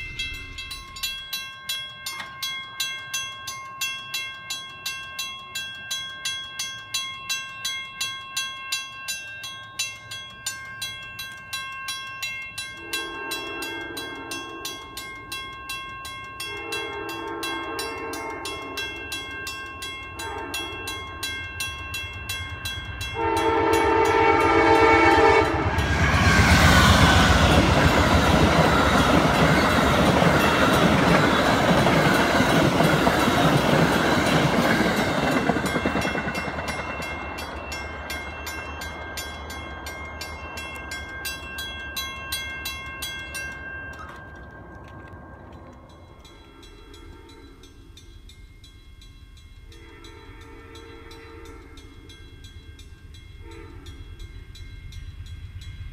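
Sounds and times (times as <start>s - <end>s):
crossing bell ringing: 0.0s - 55.9s
train wheels clattering on rails: 8.8s - 47.8s
locomotive horn chord: 12.8s - 15.0s, 16.4s - 19.0s, 20.2s - 21.0s, 23.0s - 27.4s, 49.7s - 52.1s, 53.4s - 54.0s.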